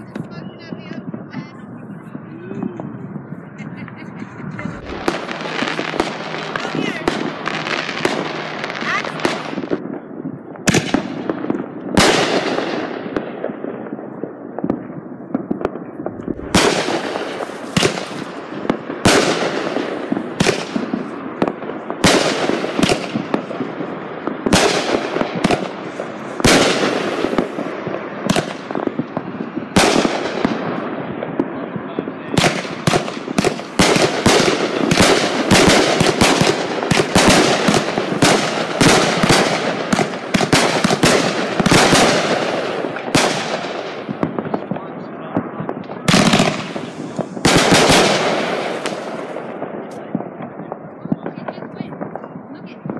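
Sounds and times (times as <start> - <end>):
fireworks bangs: 0.0 - 52.9
fireworks crackling hiss: 1.2 - 9.9, 16.0 - 31.0, 32.3 - 44.5, 46.0 - 50.1.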